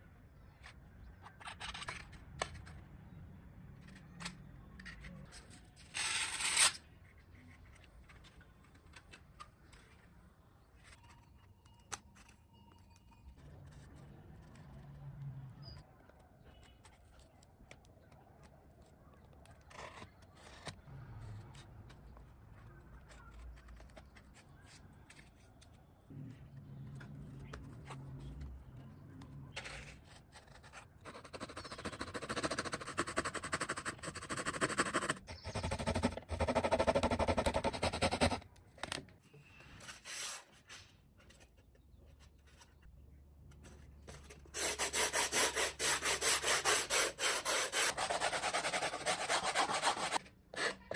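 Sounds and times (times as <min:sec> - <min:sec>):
sandpaper rubbing foam: 0:44.5 - 0:50.2
metal file rasping polystyrene: 0:44.5 - 0:50.9.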